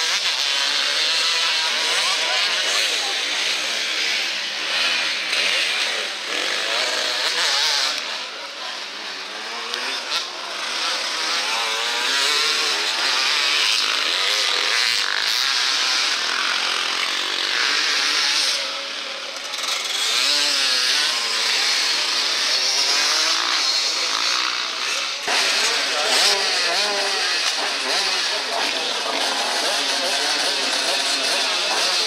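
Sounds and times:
dirt bike engines revving: 0.0 - 32.0.

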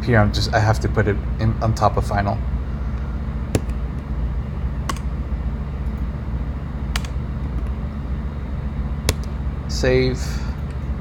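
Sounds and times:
steady low hum: 0.0 - 11.0
computer keys clicking: 7.0 - 7.2.

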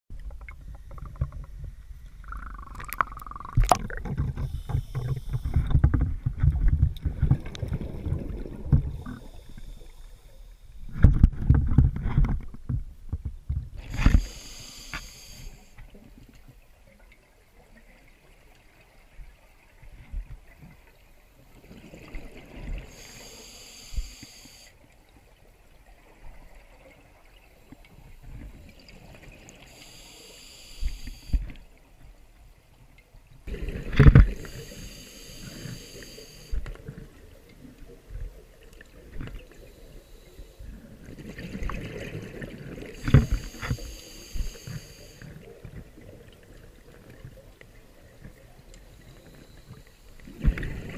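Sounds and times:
water sloshing and bubbling: 0.1 - 50.9
hissing regulator breaths: 4.4 - 5.7, 13.8 - 15.8, 22.8 - 24.8, 29.7 - 31.5, 34.1 - 36.7, 39.5 - 40.8, 42.9 - 45.5, 48.8 - 50.2.

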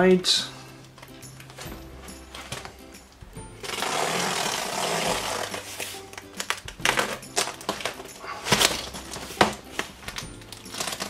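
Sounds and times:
background music: 0.0 - 11.0
cardboard and tape scraping: 3.6 - 11.0
cardboard knocks and thumps: 6.6 - 11.0.

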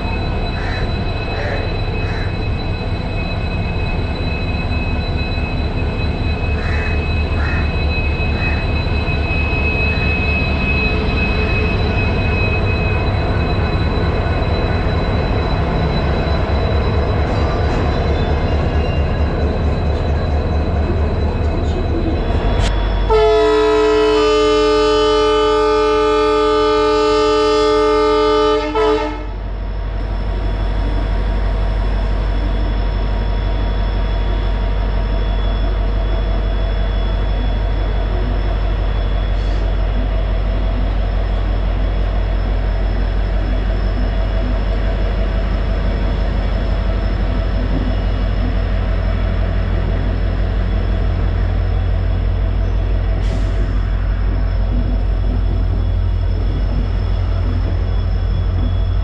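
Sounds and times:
train rumbling: 0.0 - 59.0
train horn blast: 23.1 - 29.4.

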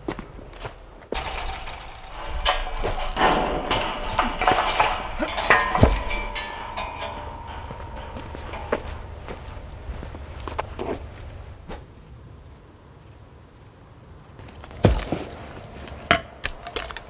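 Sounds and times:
chain-link fence rattling: 1.1 - 10.6.

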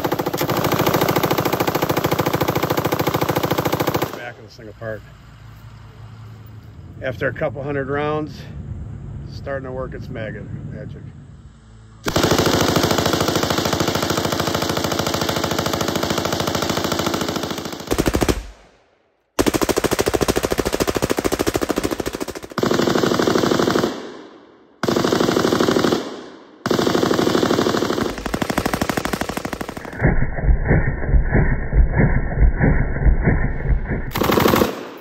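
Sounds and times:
machine gun automatic fire: 0.0 - 4.3, 12.1 - 18.7, 19.4 - 24.2, 24.8 - 30.1, 34.1 - 35.0.

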